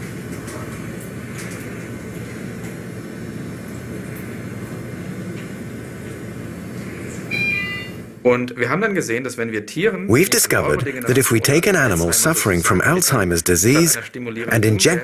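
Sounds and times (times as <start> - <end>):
low rumbling background noise: 0.0 - 15.0.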